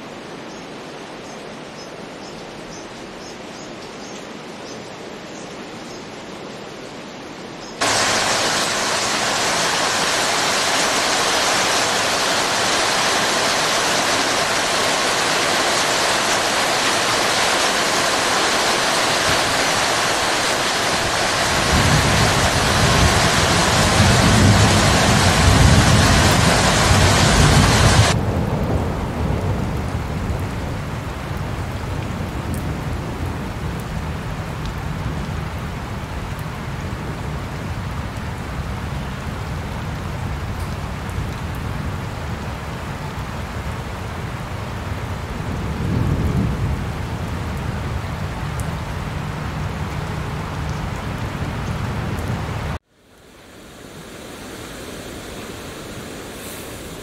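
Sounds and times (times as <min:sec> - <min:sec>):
thunder rumble: 0:07.8 - 0:35.3, 0:45.2 - 0:52.8
heavy rain falling: 0:07.8 - 0:57.0.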